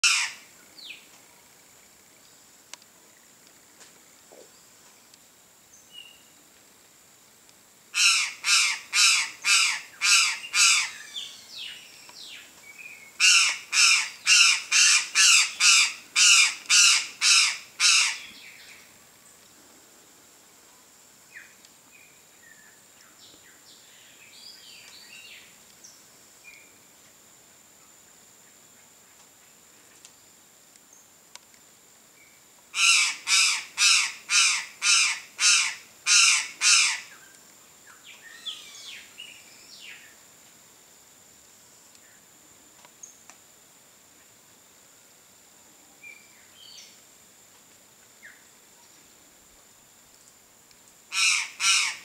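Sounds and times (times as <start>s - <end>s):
bird calling repeatedly: 0.0s - 0.4s, 8.0s - 11.6s, 13.2s - 18.4s, 32.8s - 37.2s, 38.1s - 39.1s, 51.1s - 52.0s
small birds chirping: 36.8s - 40.1s.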